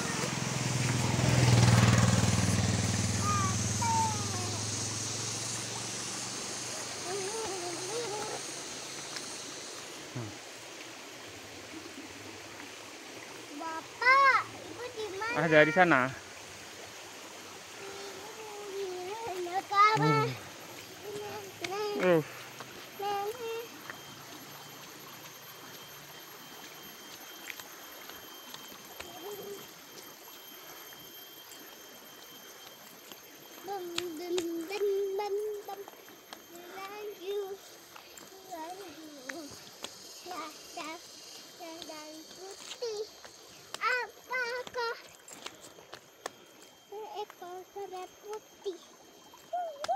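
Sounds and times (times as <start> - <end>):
motorbike engine humming: 0.0 - 9.5
running water rushing: 0.0 - 49.9.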